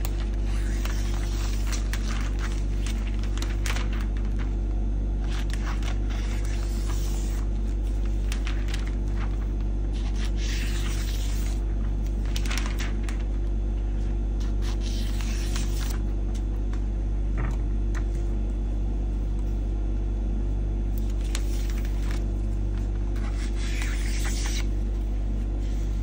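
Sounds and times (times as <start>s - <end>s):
scissors cutting cellophane: 0.0s - 3.8s
steady low hum: 0.0s - 26.0s.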